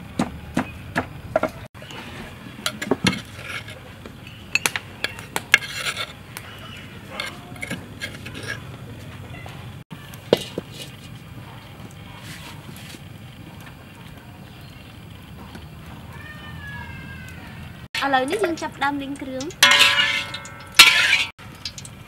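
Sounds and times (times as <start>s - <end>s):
utensil clinking and scraping: 2.0s - 6.2s, 6.9s - 9.2s, 18.0s - 21.9s.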